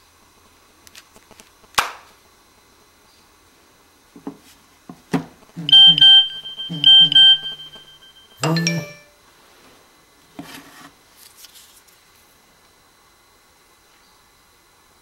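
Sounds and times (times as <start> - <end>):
electronic beeps in pairs: 5.6 - 9.1
low electronic musical line: 5.6 - 9.2.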